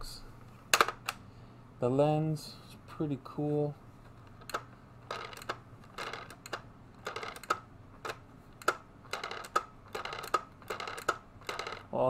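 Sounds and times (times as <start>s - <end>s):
hard plastic clicks: 4.1s - 11.8s.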